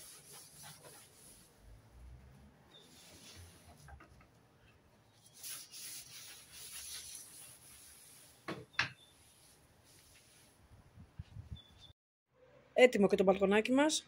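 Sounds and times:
cloth rubbing wooden table: 5.3 - 10.6.

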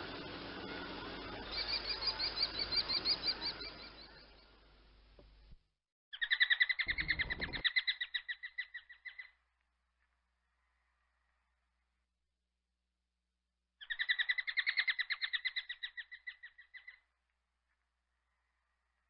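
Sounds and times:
kestrel calling: 0.0 - 4.4, 6.2 - 9.3.

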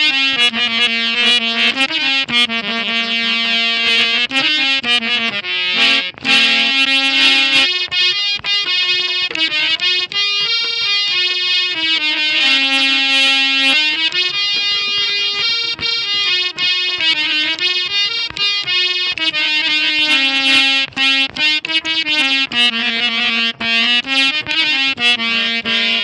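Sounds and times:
harmonium folk melody: 0.0 - 26.0.

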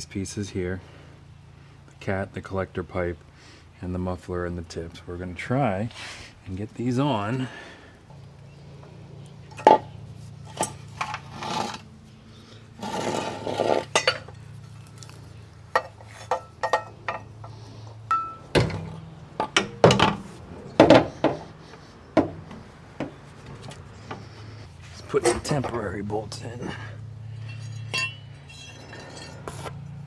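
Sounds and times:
metal scrape: 10.1 - 11.9, 12.8 - 14.9
metal parts clinking and knocking: 13.6 - 14.4, 15.7 - 17.3, 27.4 - 29.6.

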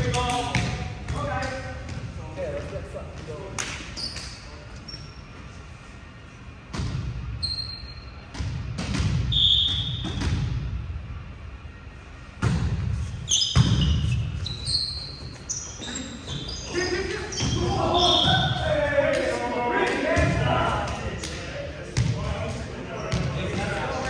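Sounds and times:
sneakers squeaking on court: 3.9 - 5.5, 6.7 - 10.4, 12.9 - 18.7, 22.9 - 23.6.

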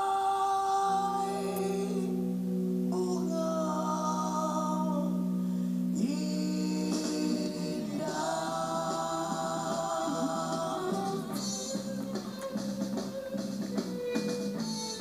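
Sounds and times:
person singing: 0.0 - 12.9
rock band playing: 6.9 - 15.0.

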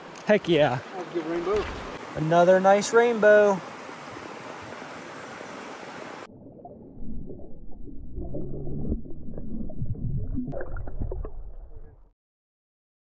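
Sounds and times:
river rushing: 0.0 - 6.3
muffled underwater gurgling: 6.8 - 12.0.

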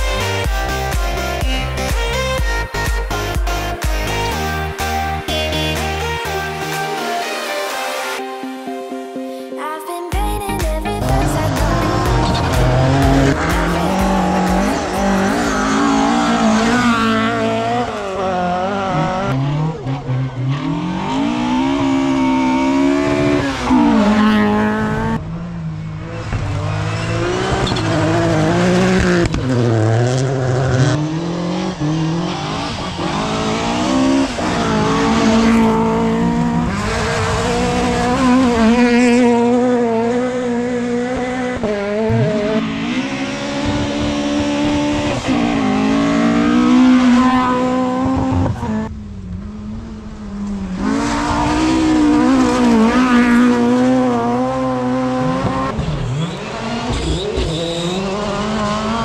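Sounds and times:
rally car engines revving: 11.0 - 59.0.

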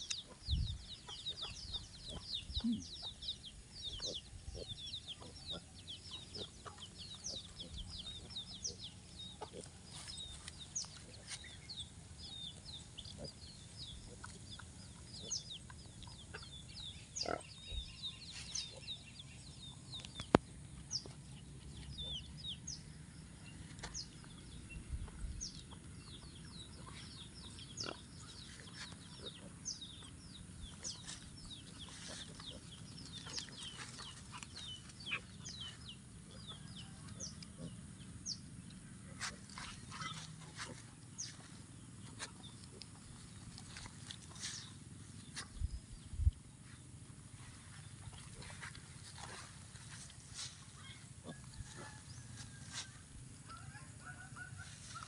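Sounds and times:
chicks peeping: 0.0 - 11.8, 23.8 - 45.8.

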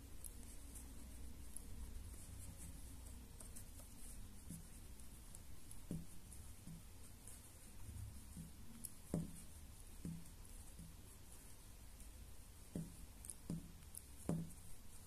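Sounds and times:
crochet hook scratching yarn: 0.0 - 15.0
soft bump: 8.2 - 11.0, 12.7 - 14.6.

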